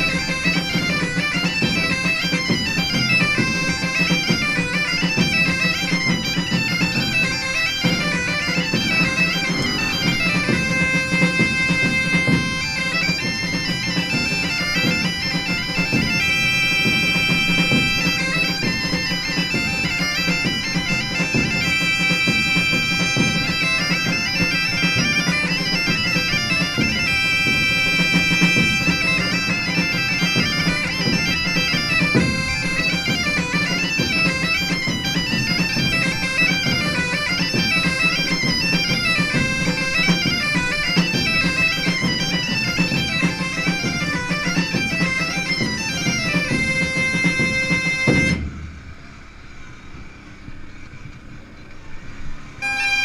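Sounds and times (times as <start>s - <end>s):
bagpipe music: 0.0s - 48.6s, 51.9s - 53.0s.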